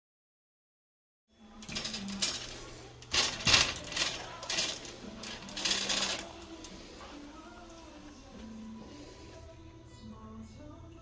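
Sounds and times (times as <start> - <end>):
plastic shopping cart rattling: 1.5 - 7.1.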